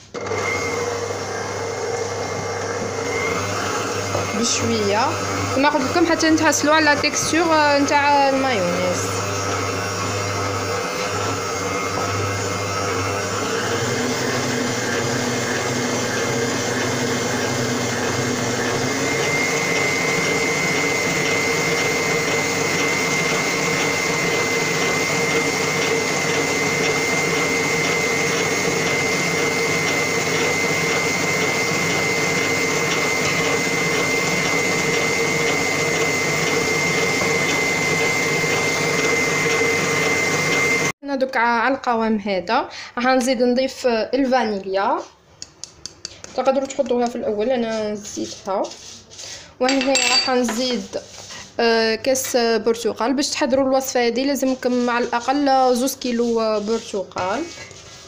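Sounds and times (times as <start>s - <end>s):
stand mixer motor whine: 0.0s - 41.0s.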